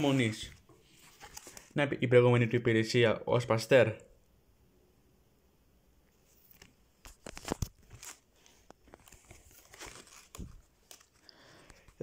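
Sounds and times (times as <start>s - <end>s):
plastic sleeves crinkling: 0.0s - 1.8s, 6.4s - 12.0s.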